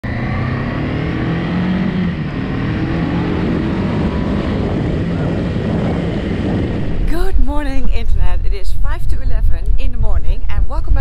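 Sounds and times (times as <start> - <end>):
motorcycle engine revving: 0.0 - 7.3
wind and road rush: 0.0 - 11.0.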